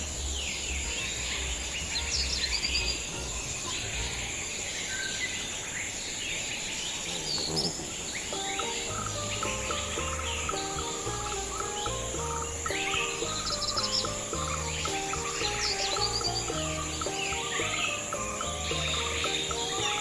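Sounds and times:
soft music with stepped notes: 0.0s - 4.7s, 8.3s - 20.0s
birds chirping: 0.0s - 20.0s
high insect buzz: 6.7s - 20.0s.

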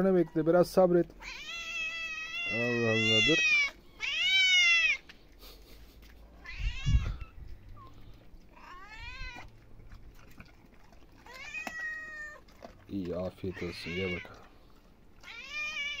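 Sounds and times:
cat meowing: 1.2s - 5.0s, 6.4s - 7.4s, 8.5s - 9.5s, 11.2s - 12.4s, 13.4s - 14.5s, 15.2s - 16.0s.

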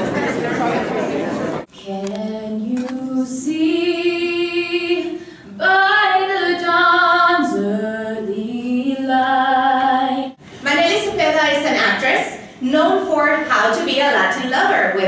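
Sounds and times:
girl singing unaccompanied: 1.8s - 10.4s.

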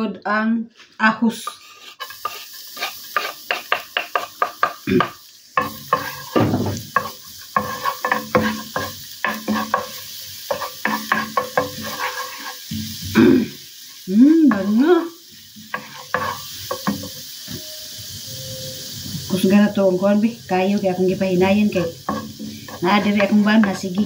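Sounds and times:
wooden spoon scraping a pan: 0.8s - 13.2s, 15.6s - 17.6s, 21.7s - 24.0s
garlic sizzling in oil: 0.8s - 24.0s.

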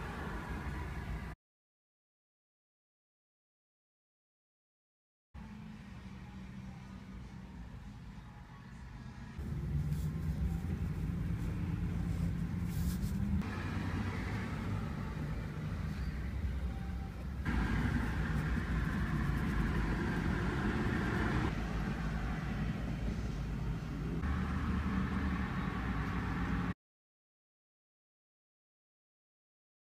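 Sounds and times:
road traffic rumble: 0.0s - 1.4s, 5.4s - 26.8s.

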